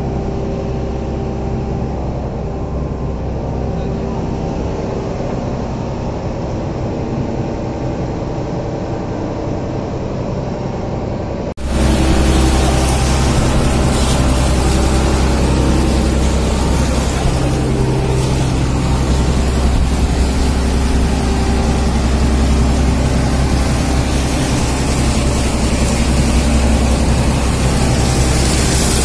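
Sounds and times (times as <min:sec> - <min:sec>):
boat engine droning: 0:00.0 - 0:29.0
hose water splashing: 0:11.6 - 0:29.0.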